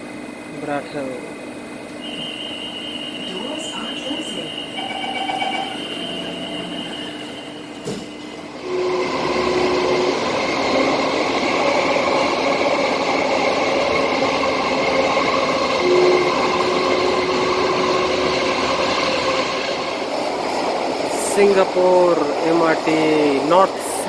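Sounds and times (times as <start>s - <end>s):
steady motor hum: 0.0s - 4.9s
train running noise in tunnel: 0.0s - 24.0s
train doors knocking shut: 7.6s - 8.3s.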